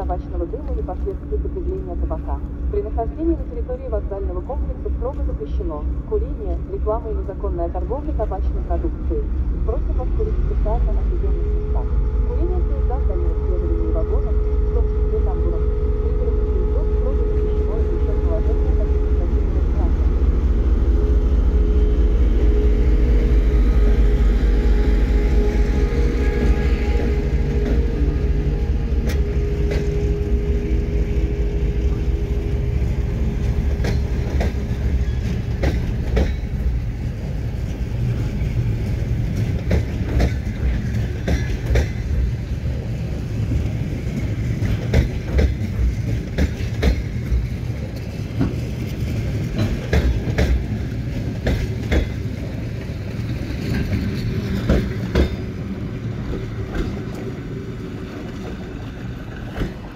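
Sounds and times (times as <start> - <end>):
train rumble: 0.0 - 59.9
train wheels clicking over rail joints: 33.4 - 57.3.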